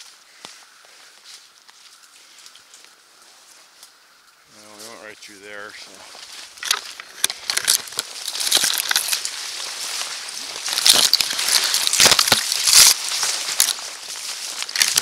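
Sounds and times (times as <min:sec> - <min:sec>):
footsteps crunching through snow: 0:00.0 - 0:15.0
twigs crackling: 0:00.0 - 0:15.0
branches scraping a jacket: 0:05.8 - 0:15.0.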